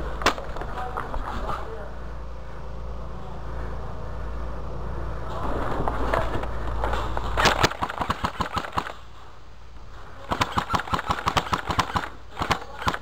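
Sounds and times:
rustling movement: 3.4 - 11.2
airsoft gun rapid shots: 7.4 - 9.0, 10.3 - 13.0.

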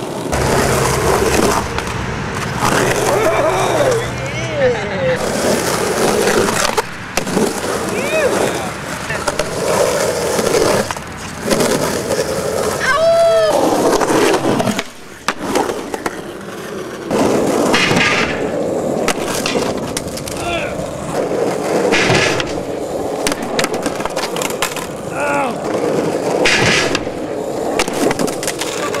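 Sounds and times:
skateboard clacks: 0.0 - 29.0
skateboard rolling on concrete: 0.0 - 29.0
skateboard scrapes: 0.0 - 29.0.

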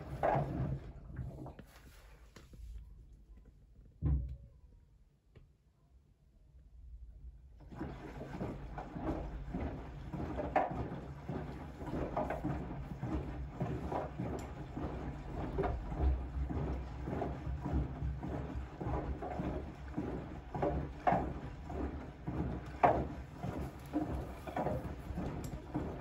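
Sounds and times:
pillow sloshing in water: 7.7 - 26.0
washing machine drum turning: 8.1 - 26.0.

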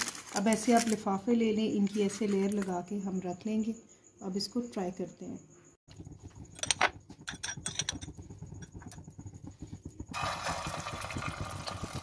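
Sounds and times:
patty sizzling in hot oil: 7.2 - 12.0.

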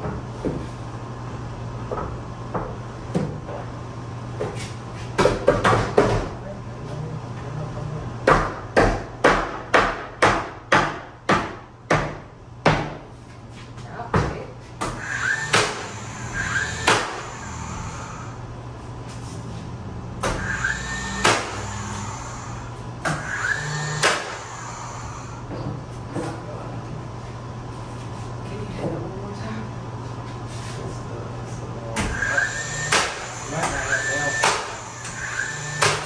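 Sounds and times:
hammer striking wood: 8.2 - 13.0, 14.2 - 15.9, 16.8 - 17.2, 20.2 - 20.6, 21.2 - 21.7, 23.0 - 23.3, 23.9 - 24.4, 32.8 - 33.8, 34.4 - 34.7, 35.8 - 36.0.

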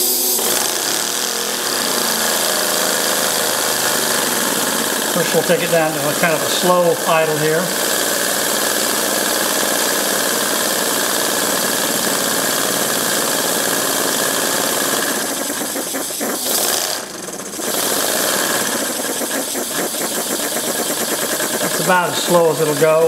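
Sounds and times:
compressed-air engine hiss and clatter: 0.0 - 23.0.

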